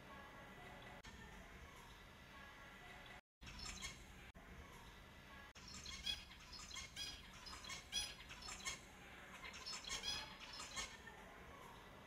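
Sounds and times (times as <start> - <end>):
finches chirping: 3.4 - 4.1, 5.6 - 11.0.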